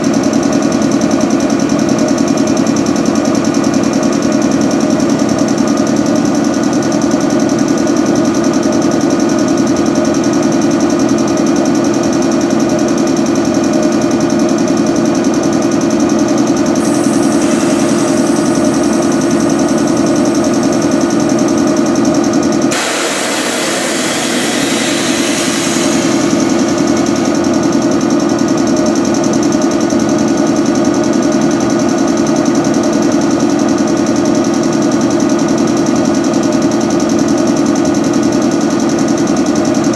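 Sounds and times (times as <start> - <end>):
air compressor knocking hum: 0.0 - 39.9
loud air hiss: 16.8 - 20.7, 22.7 - 27.9.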